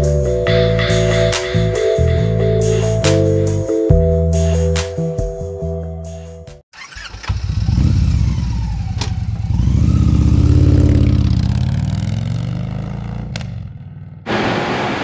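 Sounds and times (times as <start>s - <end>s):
motorcycle engine passing by: 6.8s - 14.3s.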